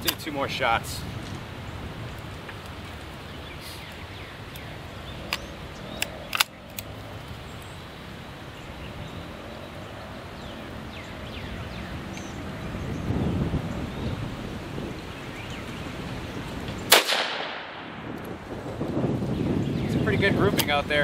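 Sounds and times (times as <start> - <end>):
outdoor background noise: 0.0 - 21.0
shotgun metallic clicks: 4.5 - 6.9.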